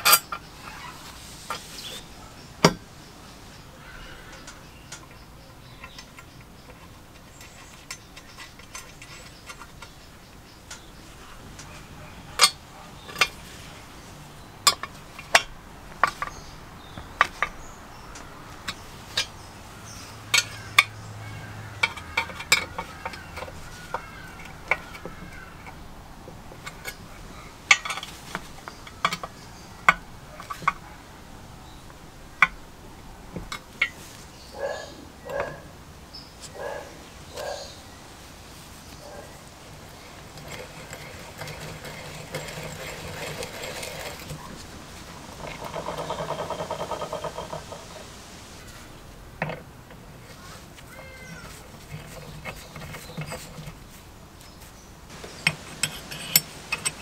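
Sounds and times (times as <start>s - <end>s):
metallic clicks and knocks: 4.3s - 11.8s, 14.6s - 21.0s, 21.8s - 27.1s, 27.7s - 30.8s, 40.2s - 48.1s, 49.4s - 54.0s, 55.1s - 57.0s
screwdriver working screws: 40.3s - 44.4s, 55.1s - 57.0s.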